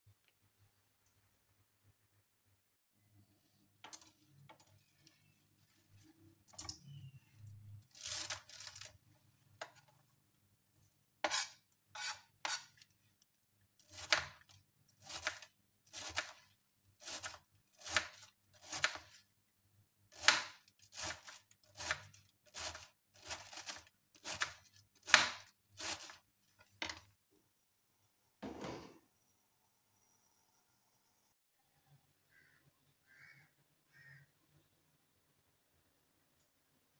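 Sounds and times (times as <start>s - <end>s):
knife chopping on cutting board: 11.2s - 12.7s, 17.0s - 19.1s, 20.2s - 22.0s.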